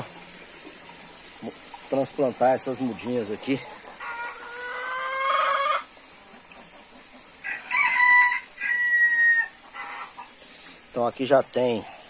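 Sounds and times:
rooster crowing: 4.0 - 5.9, 7.4 - 10.0.

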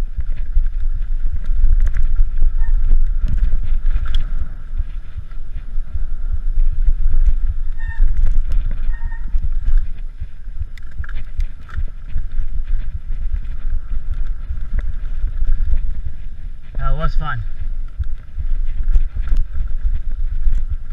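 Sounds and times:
bike rattling over rough ground: 0.0 - 20.9
wind buffeting microphone: 0.0 - 20.9
brief squeaks: 7.8 - 8.2, 8.8 - 9.3.

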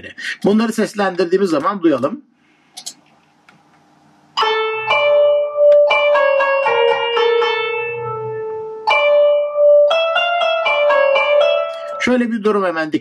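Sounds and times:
synthesized plucked-string melody: 4.4 - 12.2.

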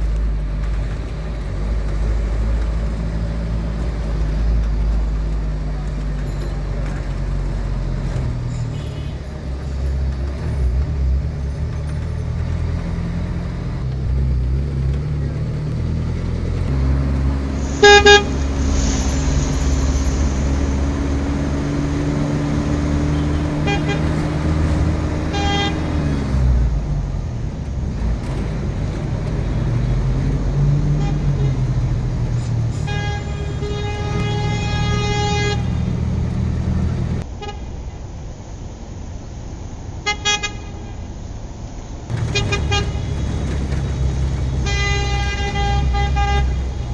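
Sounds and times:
traffic engine rumble: 0.0 - 46.9
vehicle horn: 8.5 - 9.3, 17.6 - 26.2, 30.9 - 31.7, 32.7 - 36.2, 40.0 - 41.0, 42.1 - 43.3, 44.5 - 46.9.

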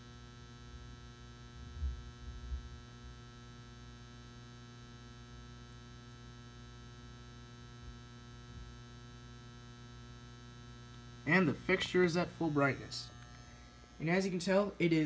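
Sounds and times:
electrical ballast hum: 5.9 - 15.0.

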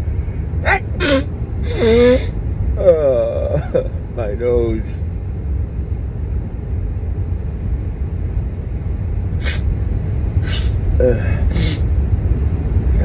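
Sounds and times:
car cabin rumble: 0.0 - 13.0
person sniffing: 1.0 - 2.3, 9.4 - 9.6, 10.4 - 10.8, 11.4 - 11.8.

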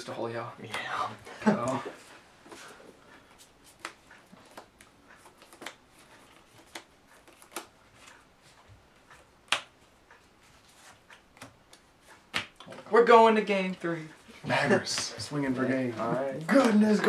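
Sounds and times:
card taps and flicks: 9.4 - 9.7, 11.1 - 12.8.

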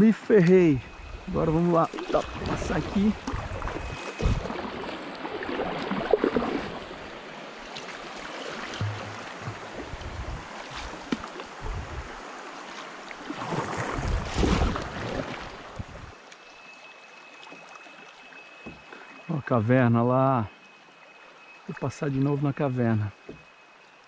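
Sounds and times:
water lapping at hull: 0.0 - 24.0
wind rumbling on microphone: 0.7 - 7.2, 8.7 - 12.4, 13.4 - 16.2
paddle strokes splashing: 0.9 - 19.3.

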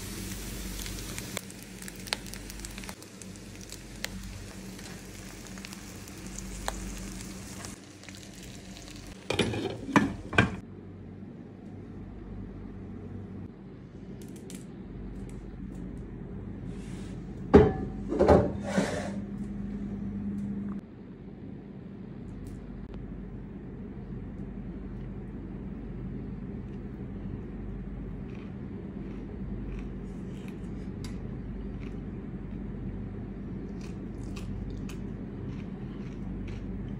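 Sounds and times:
light sizzling hiss: 0.0 - 9.4
metal pot and utensils clattering: 9.2 - 10.6.

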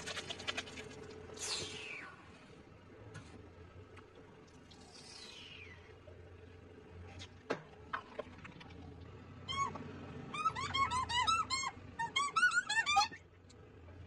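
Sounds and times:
rubber ducks squeaking: 9.4 - 13.3.

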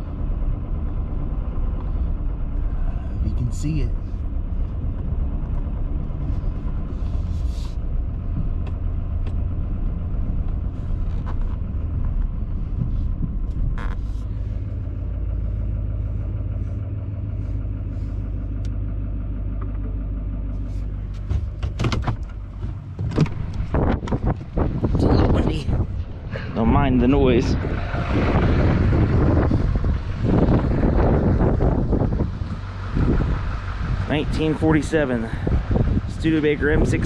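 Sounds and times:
truck engine rumbling: 0.0 - 37.0
knocks and rustles: 21.0 - 25.0.

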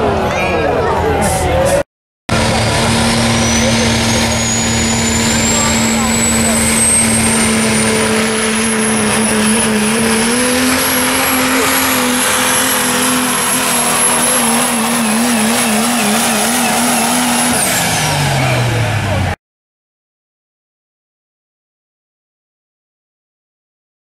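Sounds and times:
diesel engine at full throttle: 0.0 - 19.4
turbo whistle: 3.2 - 17.7.

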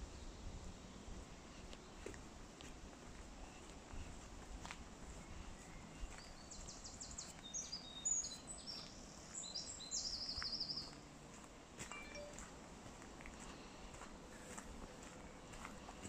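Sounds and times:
songbird singing: 0.0 - 12.5.

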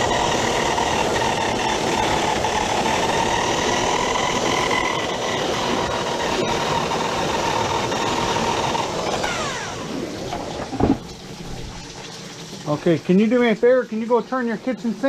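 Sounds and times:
drain-cleaning machine whirring: 0.0 - 15.0
short thump: 10.3 - 11.8.

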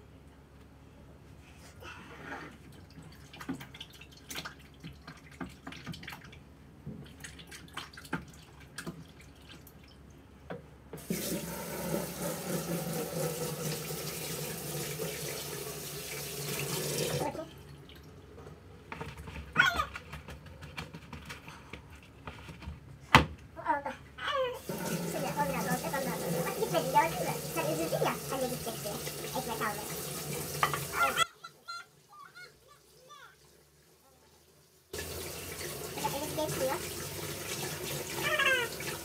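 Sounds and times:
tap water running into sink: 11.0 - 18.1, 24.6 - 31.2, 34.9 - 39.0.

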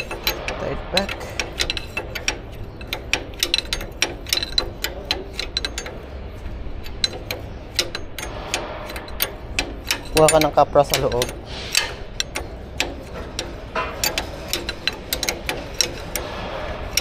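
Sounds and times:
steady low hum: 0.0 - 17.0
hand tools clinking on metal: 9.2 - 16.3.

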